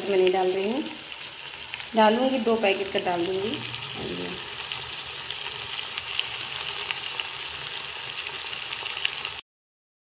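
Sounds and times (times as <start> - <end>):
vegetables sizzling in oil: 0.0 - 9.4
small crackles: 4.0 - 9.4.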